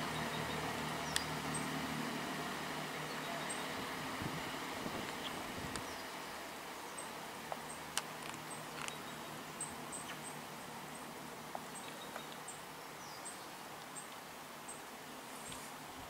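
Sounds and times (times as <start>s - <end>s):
steady low hum: 0.0s - 16.0s
sharp clicks: 1.1s - 1.3s
faint bird chirps: 3.1s - 3.8s.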